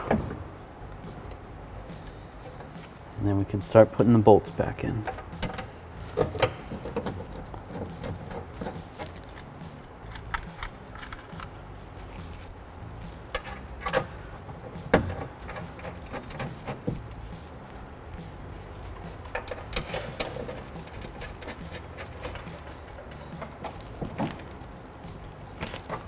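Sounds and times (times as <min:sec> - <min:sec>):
bolts clinking on sheet metal: 0:19.3 - 0:24.3.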